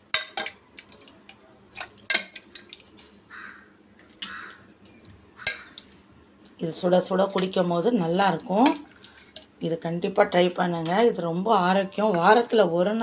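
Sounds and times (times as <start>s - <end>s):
soup splashing and dripping: 0.7s - 3.2s, 5.4s - 6.4s.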